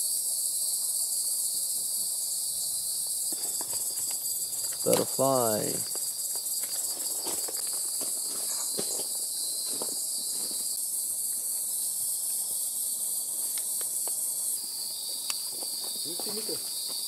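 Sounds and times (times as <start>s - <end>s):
night insects shrilling: 0.0s - 17.0s.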